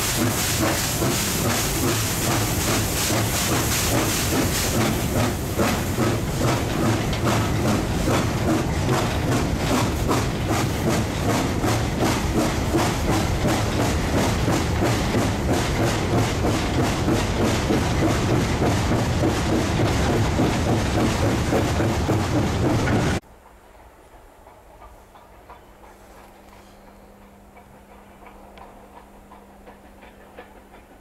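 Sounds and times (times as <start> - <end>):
wheels clattering on track: 0.0 - 23.2
steam locomotive exhaust beats: 0.0 - 31.0.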